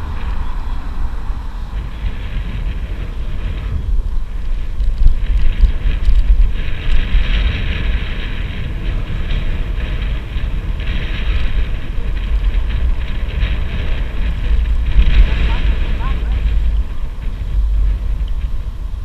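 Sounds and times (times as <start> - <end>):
bicycle tyres and drivetrain hiss: 0.0 - 19.0
wind buffeting microphone: 0.0 - 19.0
faint ticks: 16.4 - 18.6.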